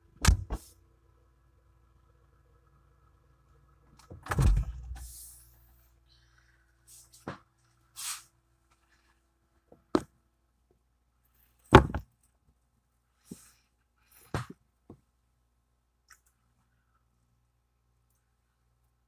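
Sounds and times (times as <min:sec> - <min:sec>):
thump: 0:11.7 - 0:12.1.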